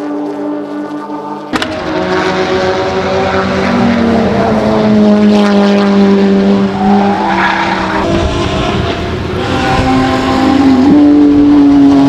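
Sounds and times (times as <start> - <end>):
race car engine at full throttle: 0.0 - 12.0.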